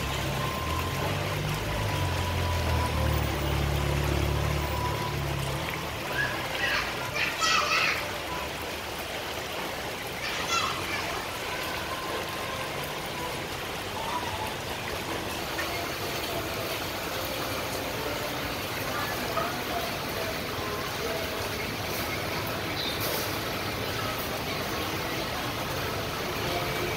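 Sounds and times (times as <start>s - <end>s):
rainwater running and dripping: 0.0s - 26.9s.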